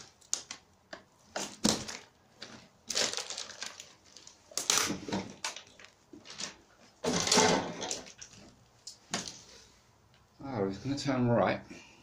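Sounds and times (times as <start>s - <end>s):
crunching and scraping over debris: 1.4s - 9.4s.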